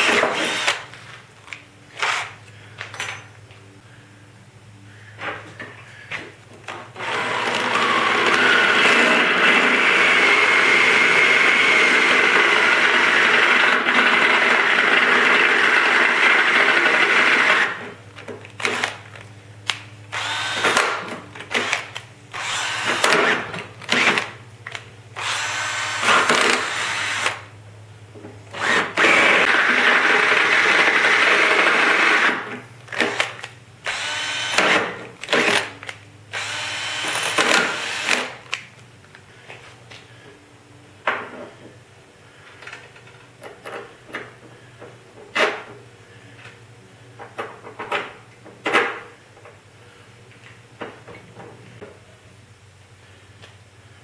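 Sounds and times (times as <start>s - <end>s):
cordless drill drilling into steel: 0.0s - 0.9s, 2.0s - 2.4s, 7.0s - 17.8s, 18.6s - 19.0s, 20.1s - 24.3s, 25.2s - 27.5s, 28.6s - 38.4s.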